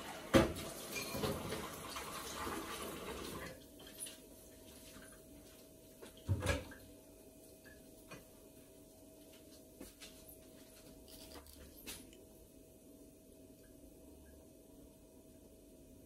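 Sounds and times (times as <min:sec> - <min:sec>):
faint steady hum: 0:03.5 - 0:16.0.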